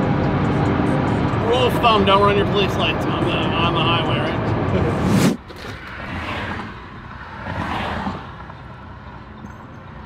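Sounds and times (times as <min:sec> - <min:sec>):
road traffic passing: 0:00.0 - 0:10.0.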